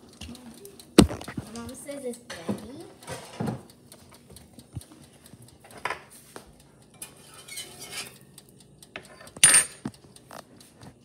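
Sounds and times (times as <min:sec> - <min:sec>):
light scrapes and clicks: 0:07.0 - 0:08.2
metal clinking on ceramic plate: 0:07.0 - 0:08.2, 0:09.0 - 0:09.9.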